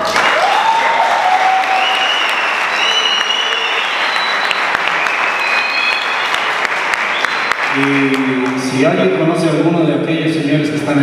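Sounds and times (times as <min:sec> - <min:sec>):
audience applauding: 0:00.0 - 0:09.1
high held whistles: 0:01.6 - 0:07.8.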